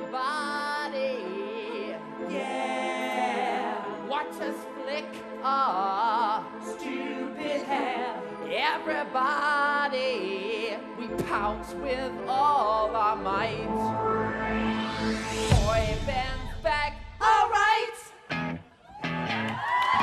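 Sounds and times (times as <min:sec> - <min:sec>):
man singing with vibrato: 0:00.0 - 0:14.1.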